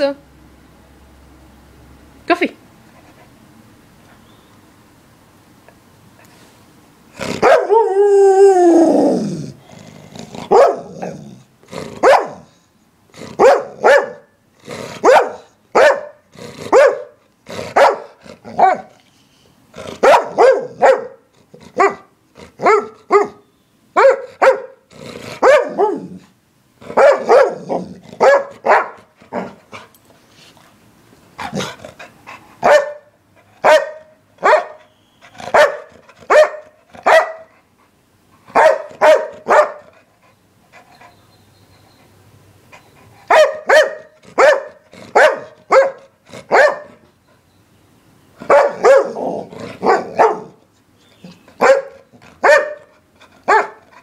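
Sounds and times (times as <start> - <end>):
dog short barks: 12.0 - 12.5, 13.4 - 14.2, 14.9 - 17.1, 26.9 - 29.6, 33.6 - 34.8.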